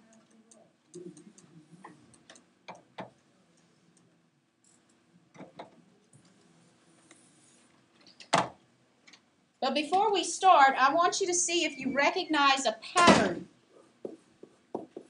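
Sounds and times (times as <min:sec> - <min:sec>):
faint low hum: 0:00.0 - 0:15.0
pen tapping on whiteboard: 0:14.0 - 0:15.0.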